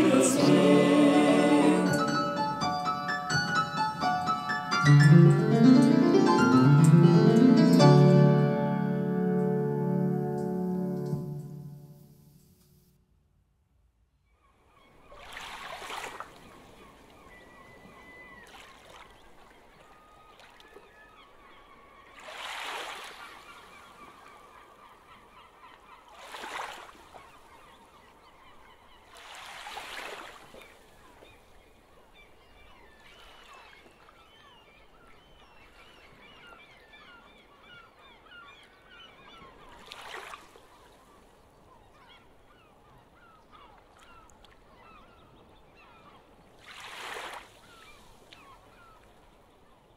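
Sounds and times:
gulls chattering: 0:00.0 - 0:08.8
harsh gull calls: 0:00.0 - 0:11.0.

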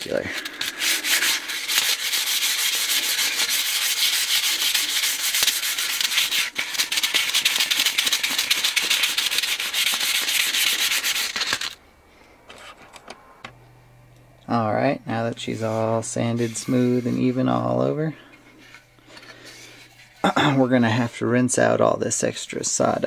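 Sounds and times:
sandpaper rubbing on wood: 0:00.0 - 0:11.8, 0:15.4 - 0:18.1.

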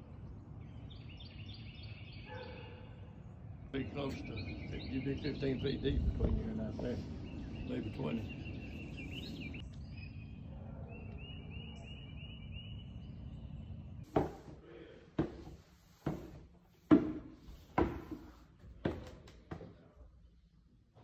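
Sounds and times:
bird chirping: 0:00.0 - 0:14.1
wind on microphone: 0:05.6 - 0:07.3.

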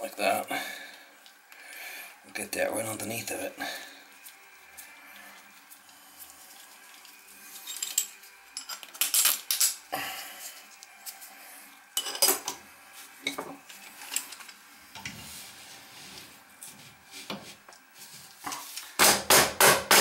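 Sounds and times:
metal clinking and scraping: 0:07.5 - 0:09.8, 0:12.0 - 0:12.6.

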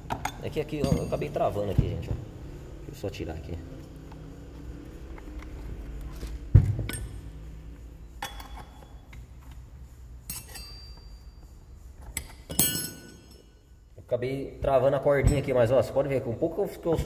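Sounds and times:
metal tools clinking and knocking: 0:00.0 - 0:01.9, 0:06.8 - 0:07.3, 0:08.2 - 0:09.6, 0:10.2 - 0:13.8.

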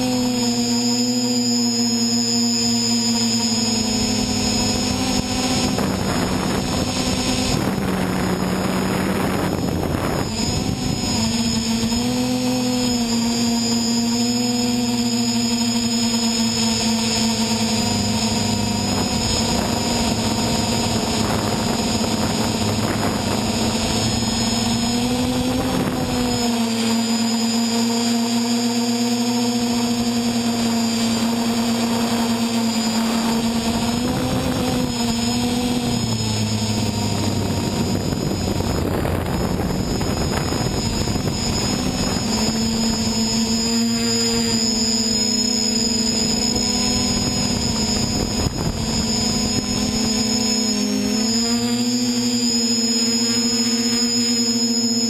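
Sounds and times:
drone propellers whining: 0:00.0 - 0:55.0
rush of noise: 0:00.0 - 0:55.0.

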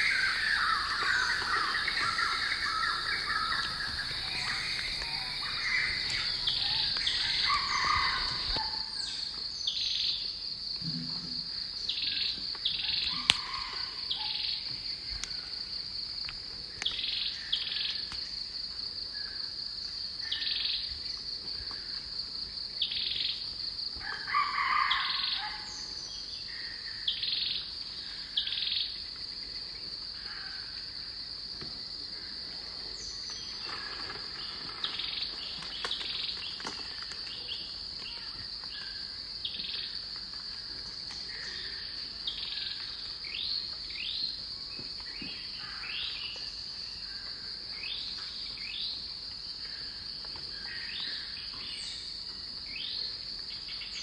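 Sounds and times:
high-pitched insect drone: 0:00.0 - 0:10.1
birds calling: 0:00.0 - 0:10.2.

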